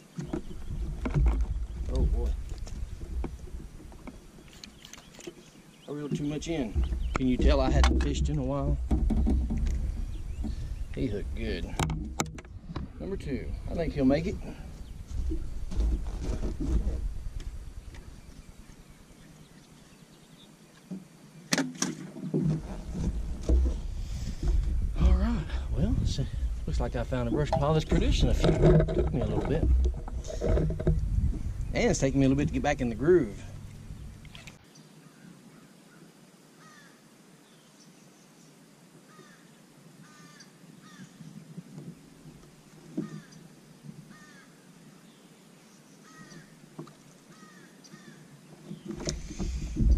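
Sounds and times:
low knocks and thump: 0.2 - 4.5, 6.0 - 18.1, 21.6 - 34.4, 48.8 - 49.9
sharp clicks on boat: 0.2 - 5.4, 48.6 - 49.9
low rumble on microphone: 0.3 - 4.4, 6.2 - 19.2, 22.4 - 34.6, 49.0 - 49.9
faint crows cawing: 34.2 - 37.0, 39.1 - 41.2, 42.9 - 44.7, 46.0 - 48.4.

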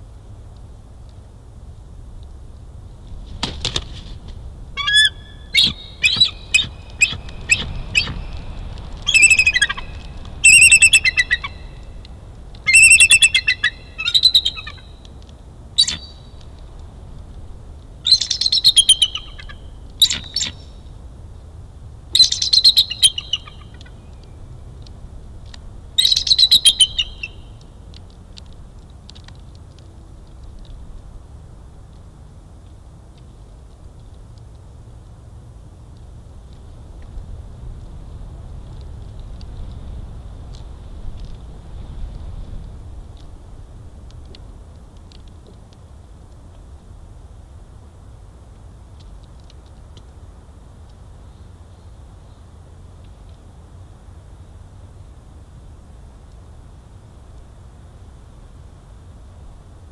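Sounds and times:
eagle chattering calls: 4.8 - 8.2, 9.1 - 11.6, 12.7 - 14.8.

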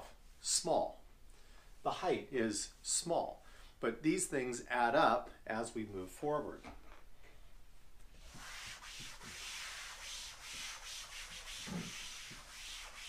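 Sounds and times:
eraser rubbing on blackboard: 8.2 - 13.0.

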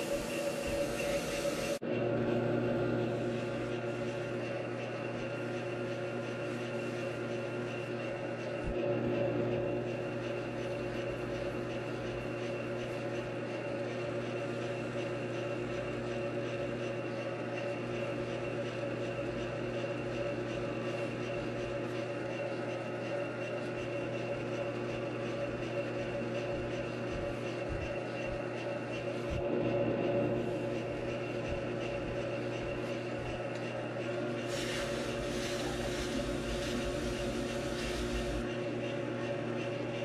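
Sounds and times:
steady whining tones: 0.0 - 8.8, 20.4 - 40.0
lathe motor humming: 0.0 - 40.0.

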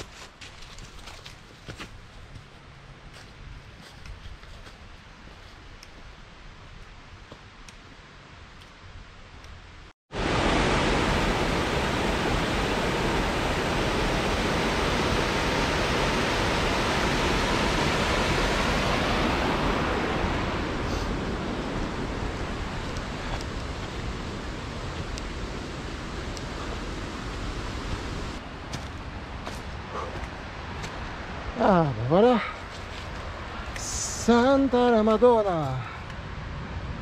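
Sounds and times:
waterfall rushing: 10.2 - 28.4.

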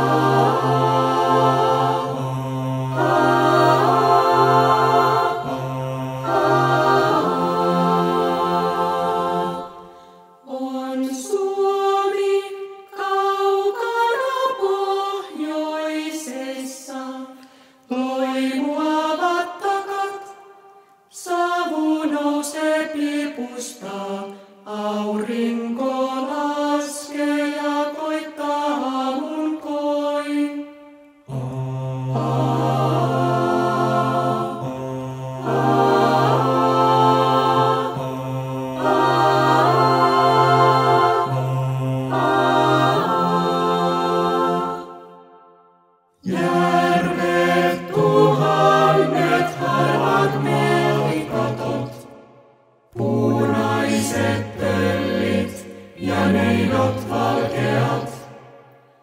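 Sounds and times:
a cappella choir singing: 0.0 - 59.0.

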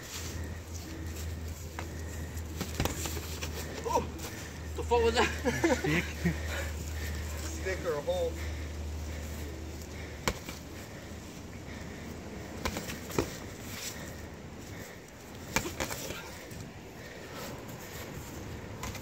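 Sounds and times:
boxing glove punches slapping: 2.5 - 3.3, 10.2 - 10.7, 12.6 - 13.5, 15.4 - 16.1.

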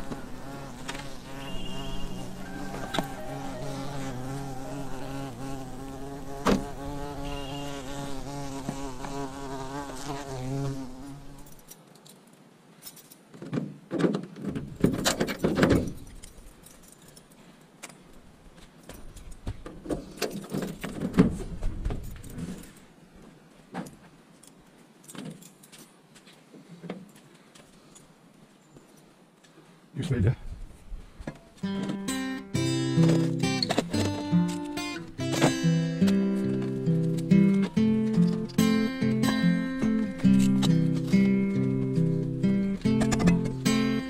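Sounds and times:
buzzing drone: 0.0 - 9.7.

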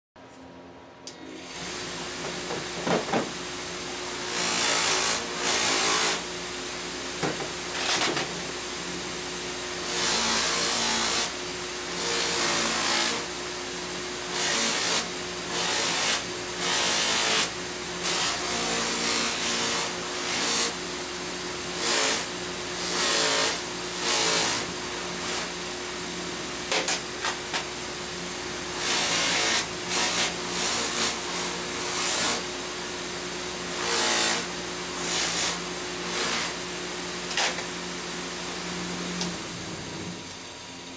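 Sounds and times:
bench grinder motor running: 1.2 - 40.9.

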